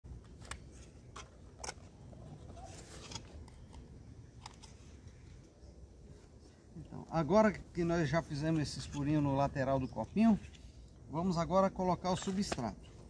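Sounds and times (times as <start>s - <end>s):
plastic cup clicks and crackles: 12.1s - 12.8s.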